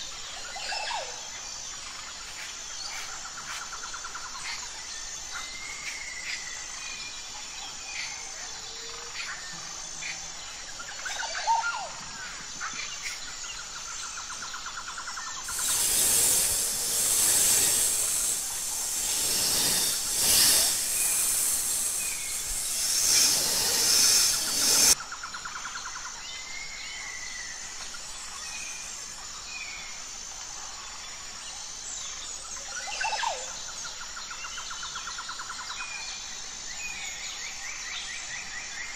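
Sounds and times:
pulsing insect trill: 13.0 - 25.0
bird chirps: 15.4 - 25.0
loud rushing hiss: 15.4 - 25.0.

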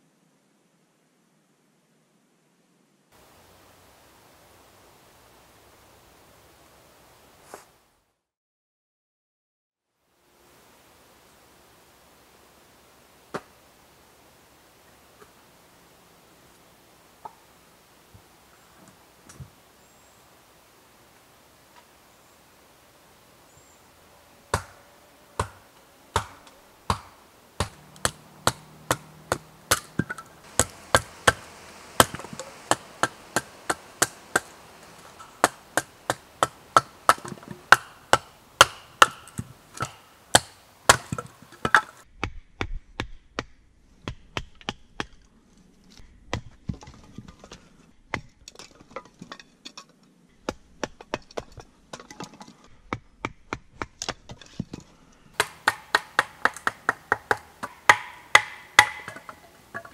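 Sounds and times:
hatchet chopping wood: 24.5 - 24.8, 25.4 - 25.6, 26.2 - 45.2, 55.4 - 59.9.

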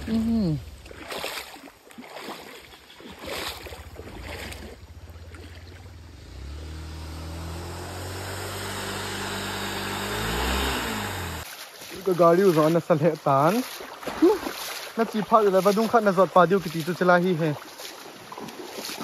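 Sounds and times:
wind or road noise: 0.0 - 1.2, 2.7 - 11.5
vehicle engine accelerating: 3.5 - 11.5.

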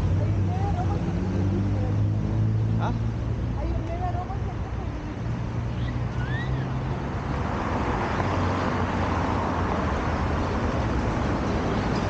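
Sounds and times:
tyres rushing on road: 0.0 - 12.0
vehicle engines humming: 0.0 - 12.0.

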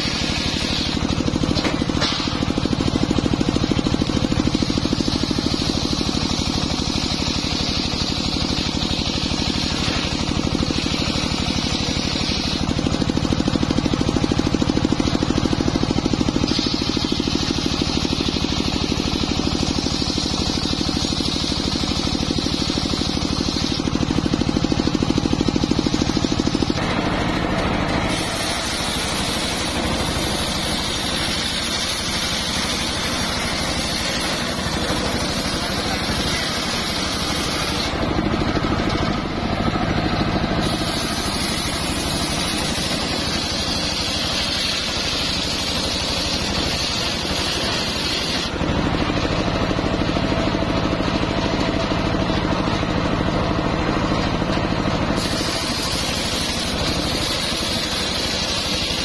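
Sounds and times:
circular saw cutting log: 0.0 - 59.0.

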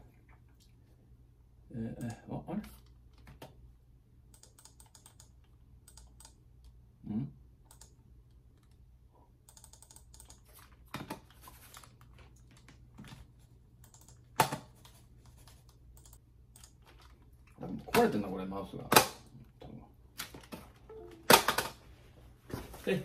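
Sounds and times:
computer mouse clicking: 4.3 - 6.8, 7.6 - 8.8, 9.4 - 10.7, 13.8 - 14.4, 15.2 - 17.1.

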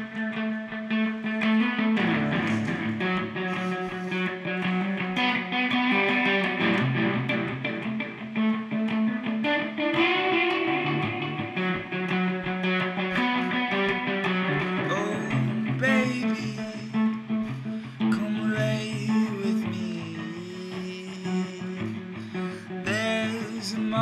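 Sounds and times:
electric guitar quickly picked notes: 1.3 - 8.5.

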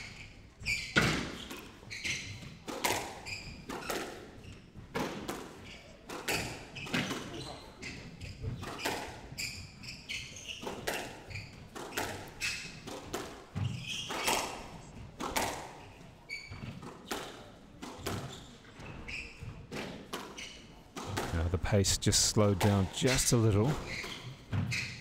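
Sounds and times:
shoes squeaking on wooden floor: 0.0 - 2.6, 3.2 - 12.9, 13.5 - 17.4, 18.0 - 25.0
squash ball cracking off rackets: 2.4 - 4.2, 10.6 - 15.8.

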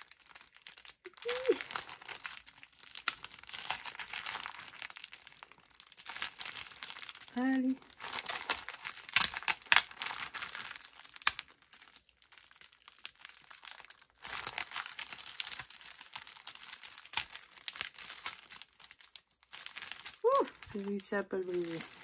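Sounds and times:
plastic bag crinkling: 0.0 - 22.0.

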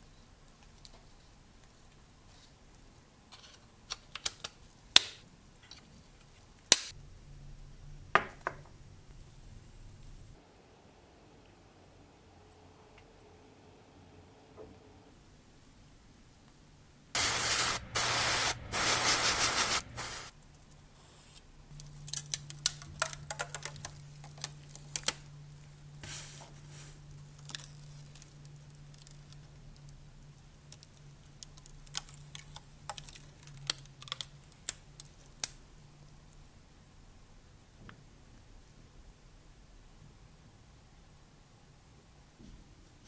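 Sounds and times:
low steady hum: 4.7 - 43.0
spray can hissing: 17.2 - 20.3
handling clicks and crackles: 21.7 - 25.3, 27.2 - 35.6
plastic film being peeled: 21.7 - 30.0, 30.7 - 35.6.

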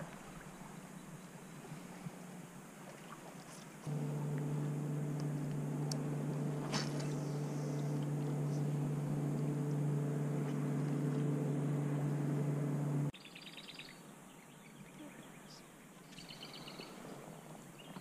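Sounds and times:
short sharp sound: 3.9 - 7.8
small motor humming: 3.9 - 13.1.

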